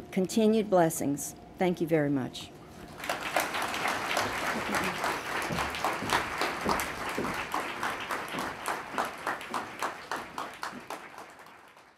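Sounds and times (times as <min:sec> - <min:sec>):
audience applauding: 0:02.9 - 0:11.9.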